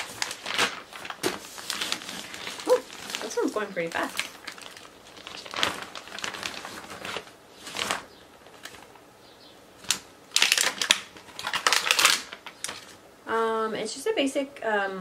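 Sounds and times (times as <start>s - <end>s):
plastic bag crinkling: 0.0s - 9.0s, 9.8s - 13.0s.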